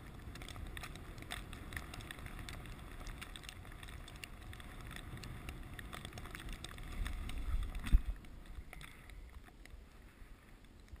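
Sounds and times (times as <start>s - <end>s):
sled runners rumbling on snow: 0.0s - 11.0s
wind on microphone: 4.3s - 9.3s.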